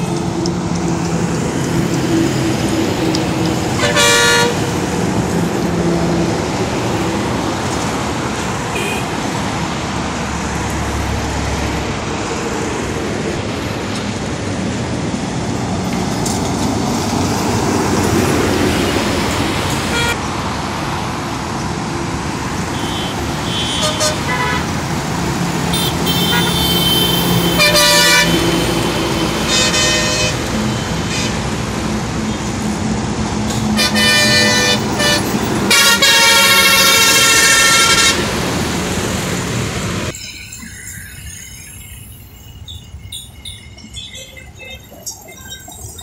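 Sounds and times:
traffic rushing past: 0:00.0 - 0:46.0
truck engine drone: 0:00.0 - 0:46.0
vehicle horn blasts: 0:03.8 - 0:04.6, 0:08.7 - 0:09.1, 0:19.9 - 0:20.2, 0:22.8 - 0:24.7, 0:25.7 - 0:28.6, 0:29.5 - 0:31.4, 0:33.8 - 0:38.3.

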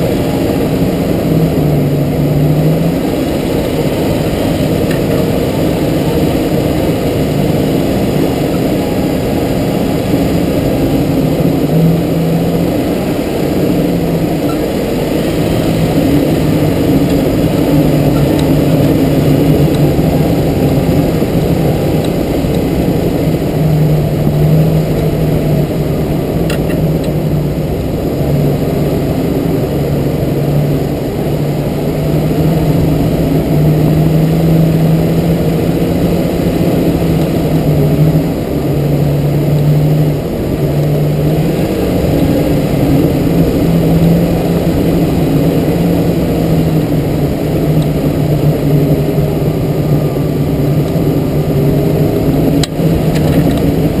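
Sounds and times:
car engine running at low revs: 0:00.0 - 0:54.0.

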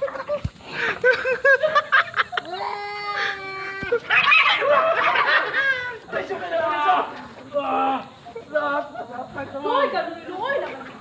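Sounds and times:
animal calls: 0:03.7 - 0:05.1.

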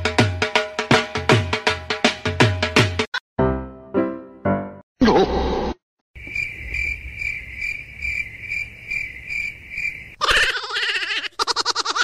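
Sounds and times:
cricket chirping trill: 0:06.2 - 0:10.2.

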